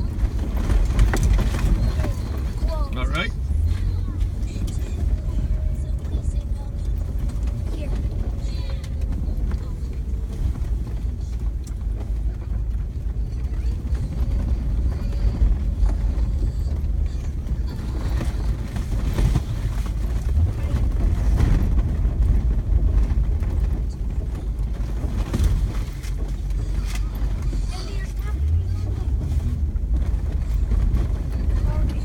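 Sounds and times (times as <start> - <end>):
engine and gravel road rumble: 0.0 - 32.0.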